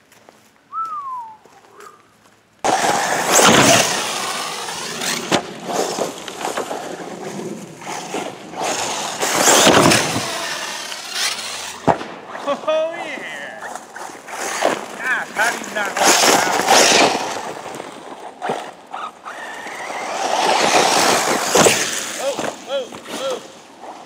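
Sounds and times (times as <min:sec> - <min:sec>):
tyre noise on grass and dirt: 0:00.0 - 0:24.0
electric motor whine: 0:02.7 - 0:11.8.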